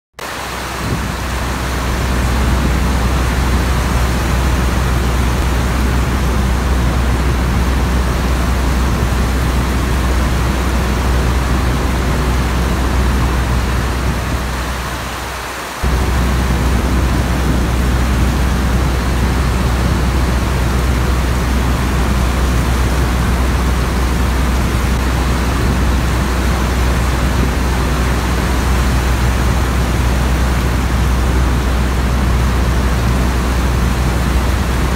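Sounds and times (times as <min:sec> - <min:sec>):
propeller plane engine drone: 0:00.2 - 0:34.9
rain hiss: 0:00.2 - 0:34.9.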